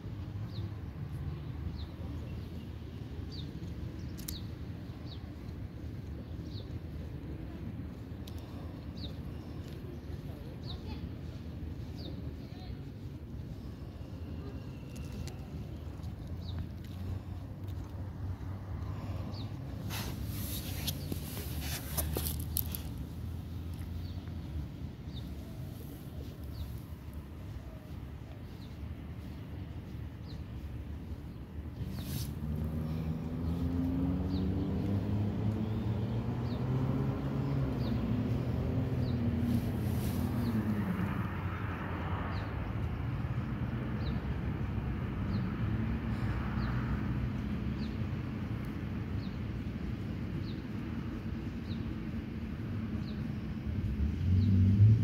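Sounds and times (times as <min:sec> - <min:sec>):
rustling: 0:15.0 - 0:24.6, 0:25.2 - 0:32.9.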